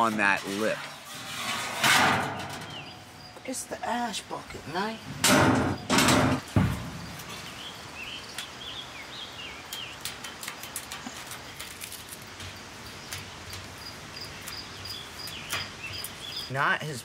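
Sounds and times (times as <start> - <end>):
metal drawer clanking: 0.0 - 3.0, 5.2 - 6.7
metal drawer scraping shut: 0.0 - 3.1, 5.2 - 7.0
birds chirping: 2.2 - 17.0.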